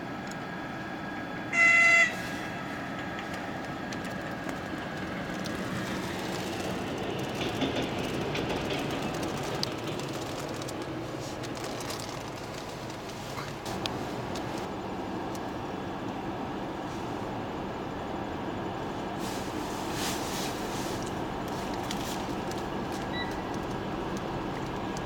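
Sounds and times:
locomotive rumble and wheel clatter: 0:00.0 - 0:25.0
locomotive horn blast: 0:01.5 - 0:02.9.

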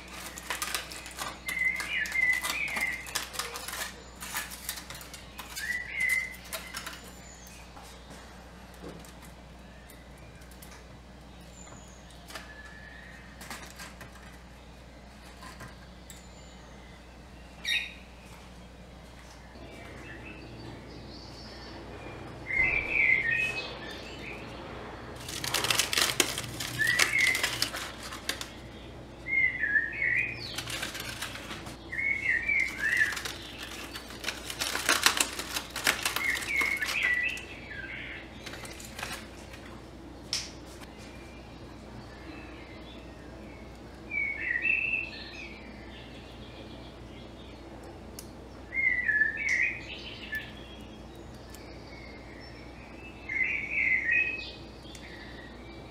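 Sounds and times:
aluminium foil crinkling: 0:00.0 - 0:09.4, 0:12.2 - 0:14.6, 0:25.1 - 0:40.9.

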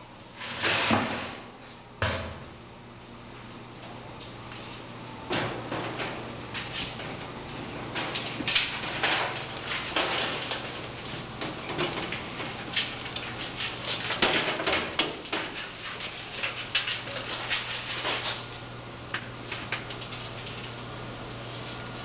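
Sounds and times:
shredded waste pattering into can: 0:07.9 - 0:22.0.

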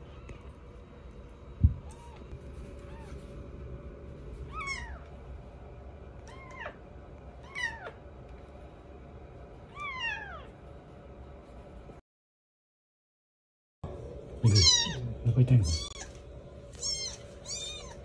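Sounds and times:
kitten mewing: 0:04.5 - 0:05.0, 0:14.4 - 0:18.0.

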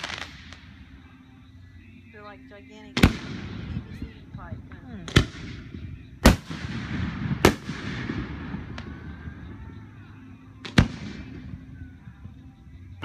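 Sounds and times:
firework shells booming: 0:00.0 - 0:00.7, 0:05.0 - 0:09.6.

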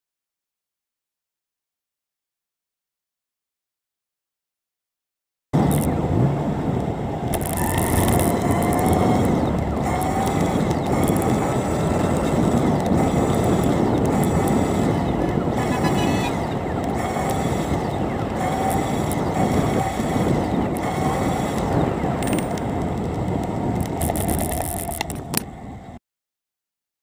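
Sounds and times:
bicycle road rumble: 0:05.6 - 0:26.0
car traffic: 0:05.6 - 0:26.0
wind on microphone: 0:05.6 - 0:26.0.

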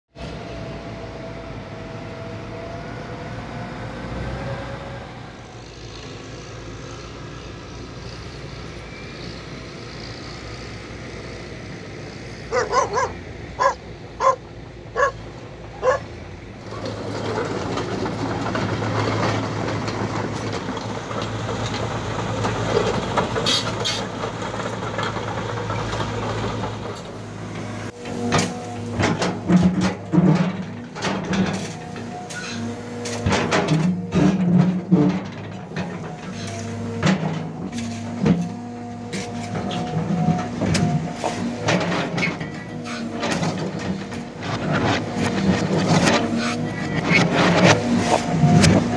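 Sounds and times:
excavator diesel engine running: 0:00.2 - 0:48.9
dog barking: 0:12.5 - 0:14.4, 0:15.0 - 0:15.2, 0:15.8 - 0:16.1
bucket scraping dirt and rocks: 0:15.8 - 0:48.9.

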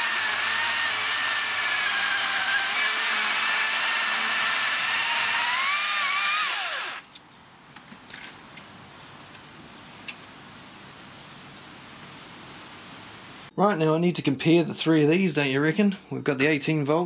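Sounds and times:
chainsaw cutting through log: 0:00.0 - 0:07.0.

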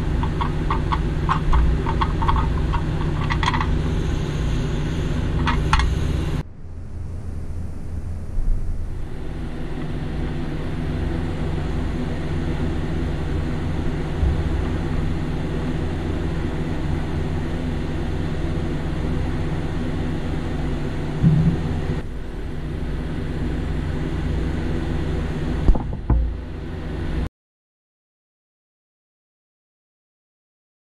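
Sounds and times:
low mechanical hum: 0:00.0 - 0:27.3.

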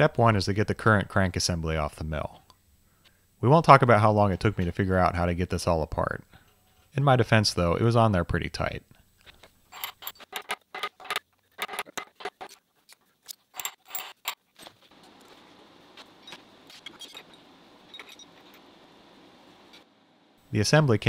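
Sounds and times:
faint steady hiss: 0:00.0 - 0:10.3, 0:14.5 - 0:21.0
small metal parts clinking: 0:09.7 - 0:12.6, 0:13.2 - 0:14.4, 0:16.2 - 0:18.3.

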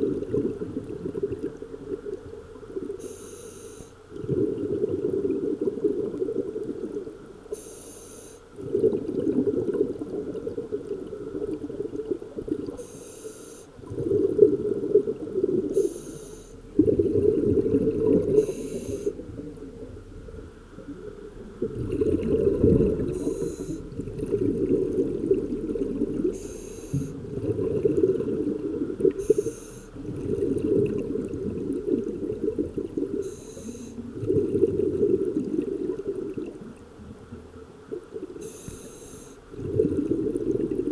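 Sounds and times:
exhaled bubbles rumbling: 0:00.0 - 0:03.0, 0:04.1 - 0:07.5, 0:08.6 - 0:12.8, 0:13.8 - 0:16.0, 0:16.6 - 0:38.6, 0:39.4 - 0:40.9
regulator hissing inhale: 0:03.0 - 0:04.0, 0:07.5 - 0:08.5, 0:12.8 - 0:13.8, 0:15.7 - 0:16.6, 0:18.3 - 0:19.2, 0:23.1 - 0:23.9, 0:26.3 - 0:27.2, 0:29.2 - 0:30.0, 0:33.2 - 0:34.0, 0:38.4 - 0:39.4.

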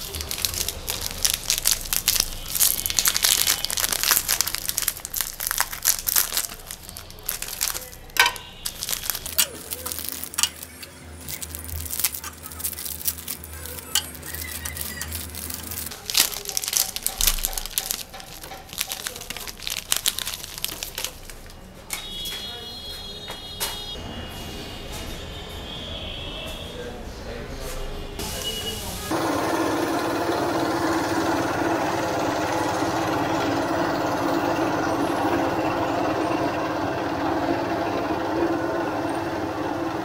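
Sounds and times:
plastic wrappers crinkling and tearing: 0:00.0 - 0:22.2.

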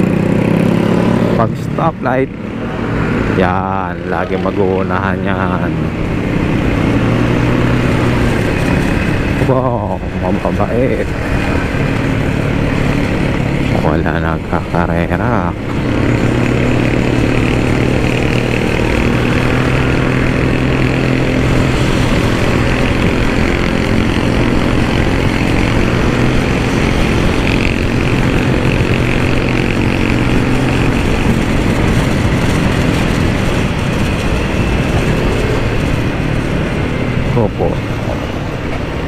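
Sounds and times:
motorcycle engine running: 0:00.0 - 0:39.0
wind rushing on microphone: 0:02.1 - 0:39.0.

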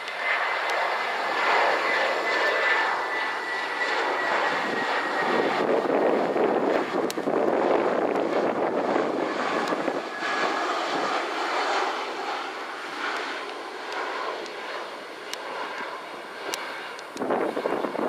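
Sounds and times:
jet engines droning: 0:00.0 - 0:18.0
wind gust on microphone: 0:04.1 - 0:10.3, 0:17.1 - 0:18.0.

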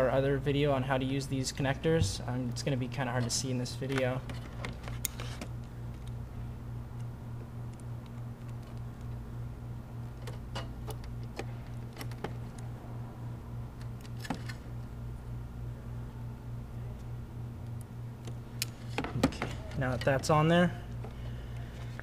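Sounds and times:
pulsing low hum: 0:01.8 - 0:02.6.

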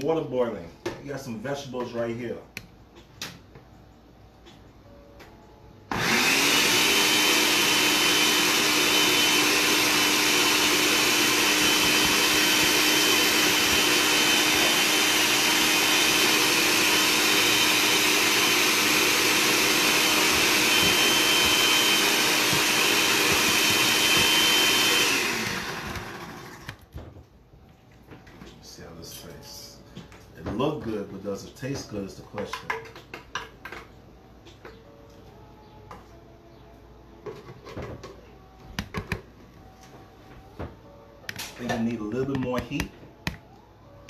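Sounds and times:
blender running: 0:05.9 - 0:26.8.

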